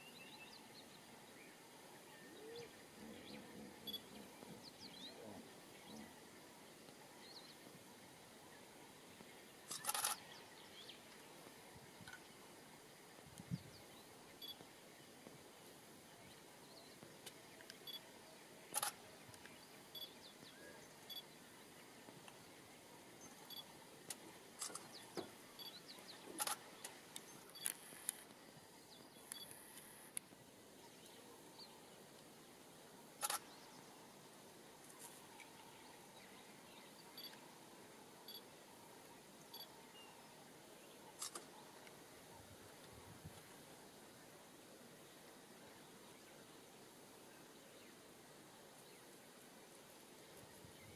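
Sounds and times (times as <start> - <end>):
faint outdoor hiss: 0.0 - 50.9
faint high chirps: 3.8 - 4.5, 17.8 - 18.1, 18.7 - 21.4, 23.2 - 23.8, 24.6 - 26.6, 36.8 - 37.4, 39.5 - 40.2.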